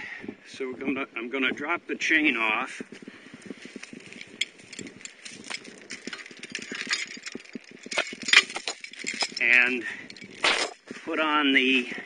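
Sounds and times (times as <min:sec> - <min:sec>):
steel chain rattling: 0:03.7 - 0:11.0.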